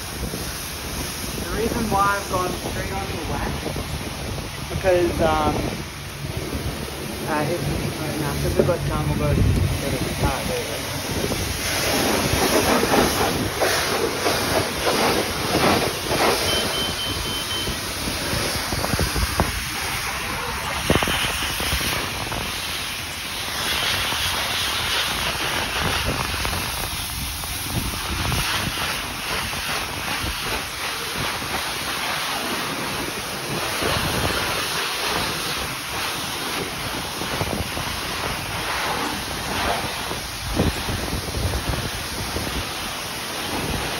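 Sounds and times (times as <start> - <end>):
pressure washer spraying: 0.0 - 43.9
short high beeps: 16.4 - 17.8.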